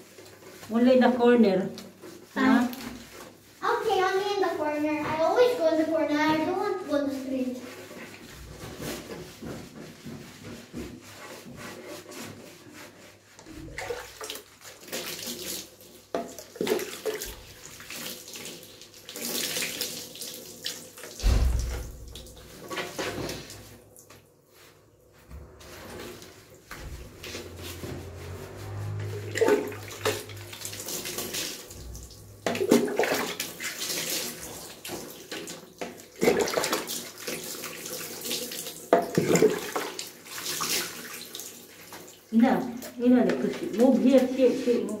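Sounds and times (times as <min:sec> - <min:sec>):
hands scrubbing lather into fur: 0:00.0 - 0:45.0
water splashing and sloshing: 0:00.0 - 0:45.0
dull thump: 0:21.2 - 0:22.1.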